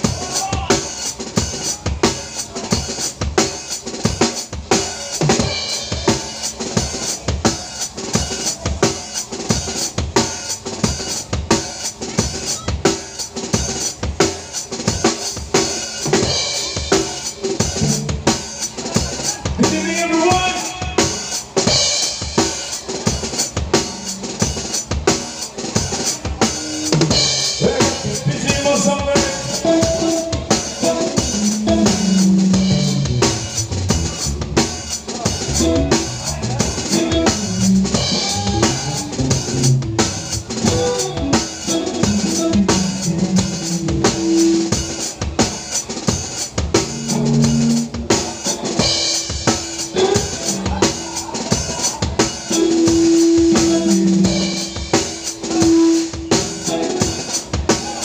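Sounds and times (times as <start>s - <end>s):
band playing: 0.0s - 58.0s
bass line: 17.7s - 18.5s, 26.9s - 44.9s, 46.7s - 48.8s.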